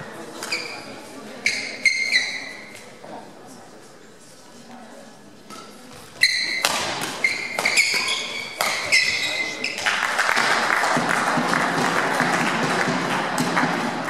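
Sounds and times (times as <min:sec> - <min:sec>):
racket striking shuttlecock: 0:05.5 - 0:14.0.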